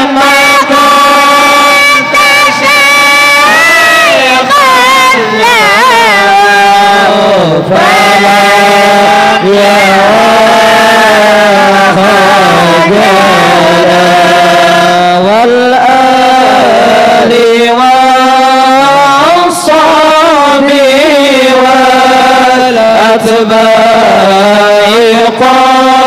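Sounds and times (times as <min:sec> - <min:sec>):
man singing melismatic line: 0:00.0 - 0:16.5.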